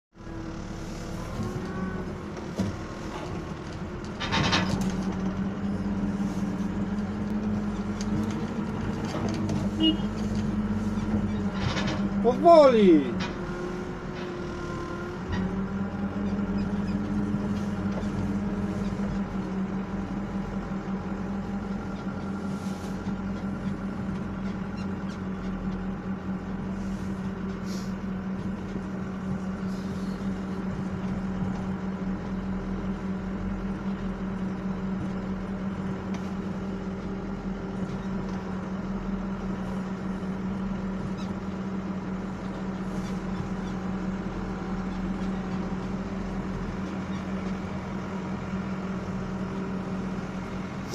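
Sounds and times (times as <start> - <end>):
diesel engine running: 0.1 - 50.9
faint rattles and clicks: 2.4 - 5.6, 6.8 - 12.2.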